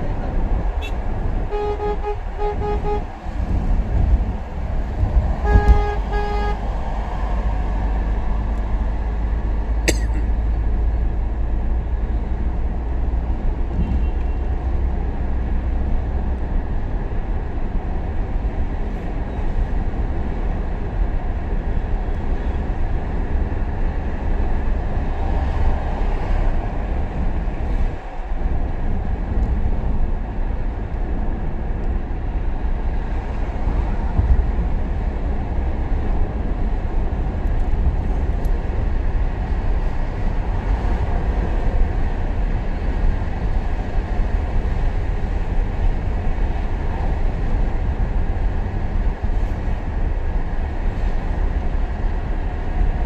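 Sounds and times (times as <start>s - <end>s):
vehicle driving rumble: 0.0s - 53.0s
vehicle horn bursts: 0.8s - 3.1s, 5.4s - 6.6s.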